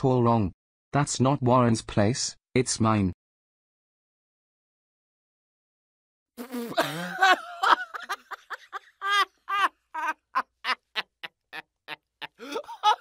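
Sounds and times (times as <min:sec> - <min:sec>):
person laughing: 0:06.5 - 0:13.0.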